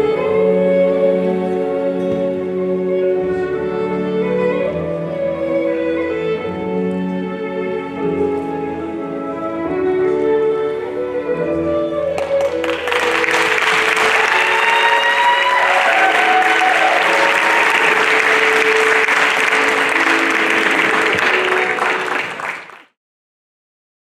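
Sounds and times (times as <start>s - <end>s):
recital music: 0.0s - 22.9s
audience applauding: 12.1s - 23.0s.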